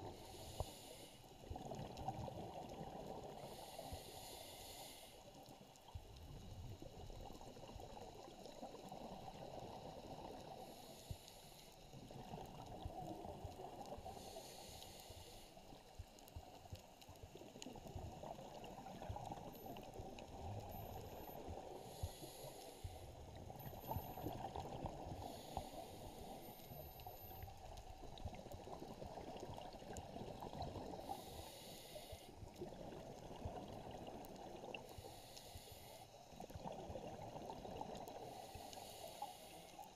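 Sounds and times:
muffled underwater rumble: 11.9 - 35.6.

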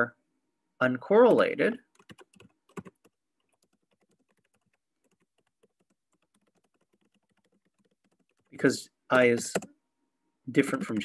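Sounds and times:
faint keyboard typing: 1.8 - 9.8, 10.6 - 11.0.

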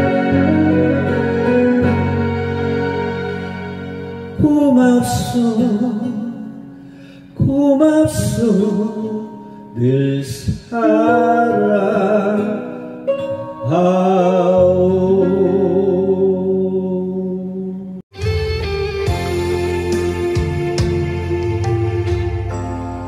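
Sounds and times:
slow backing track: 0.0 - 23.0
man singing long held notes: 4.4 - 6.6, 7.3 - 18.0.

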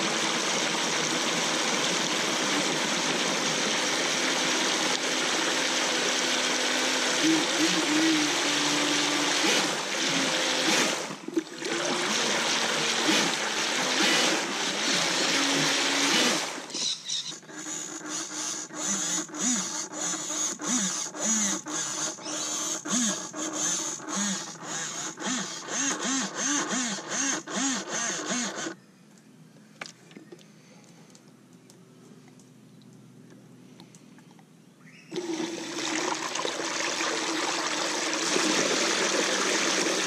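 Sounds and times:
electric motor whine: 0.0 - 28.8.

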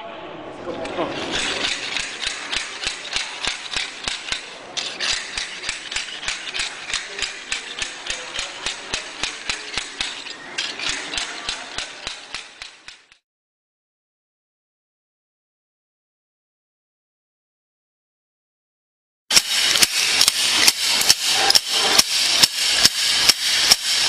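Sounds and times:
blade scraping concrete floor: 0.7 - 13.2, 19.3 - 24.0
slide-hammer scraper clacking: 0.8 - 13.2, 19.3 - 24.0.

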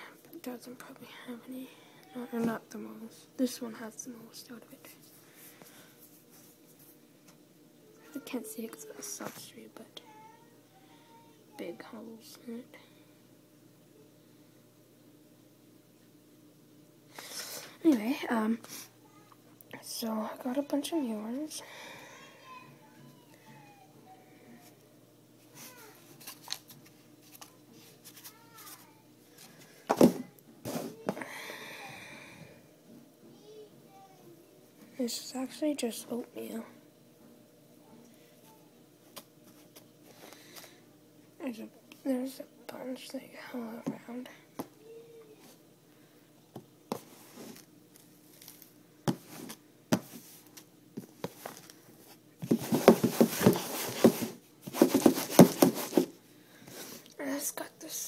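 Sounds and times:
rustling scrape: 47.0 - 47.7, 51.2 - 56.2.

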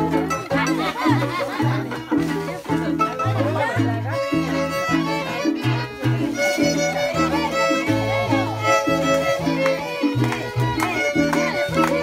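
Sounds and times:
acoustic guitar bass rhythm: 0.0 - 12.0
violins playing melody: 0.0 - 12.0.

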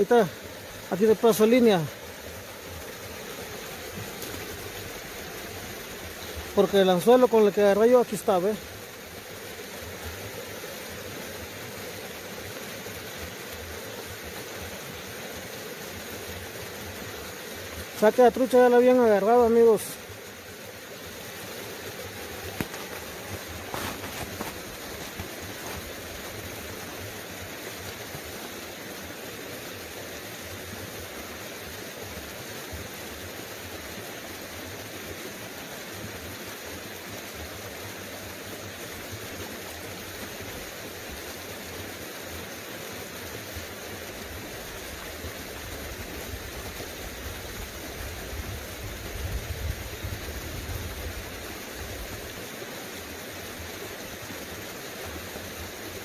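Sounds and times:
creek water running: 0.0 - 56.0.

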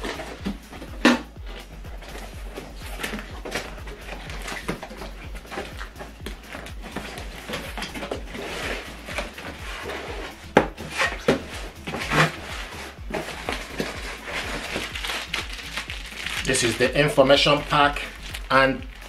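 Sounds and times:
cardboard packaging rustling: 0.0 - 19.0
cardboard scraping: 0.0 - 19.0.

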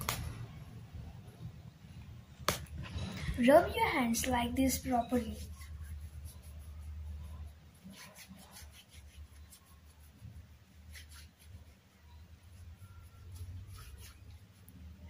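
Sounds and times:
hands rubbing together: 4.0 - 14.8.

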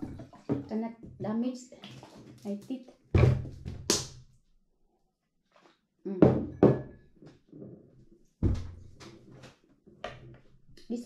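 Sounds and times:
bottle and glass knocking on table: 6.2 - 7.1.

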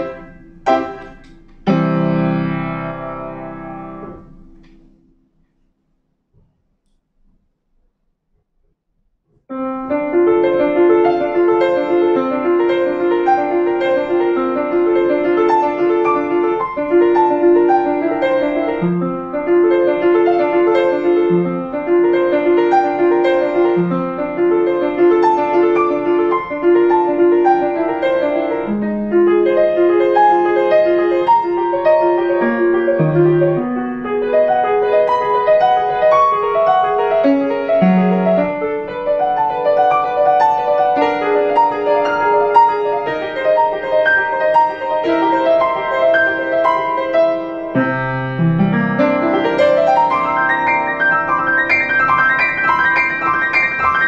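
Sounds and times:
piano quick repeated notes: 0.0 - 5.0.

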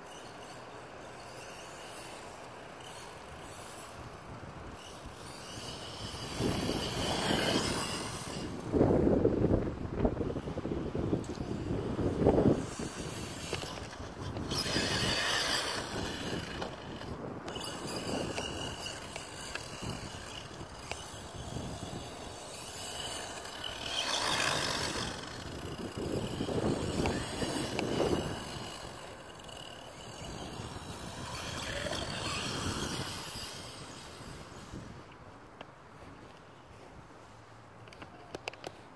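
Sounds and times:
electric motor and gears whining: 0.0 - 35.2.

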